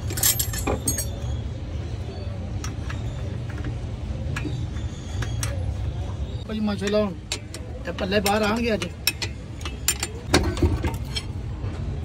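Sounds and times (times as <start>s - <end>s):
metal tools clinking: 0.0s - 1.3s, 6.8s - 11.4s.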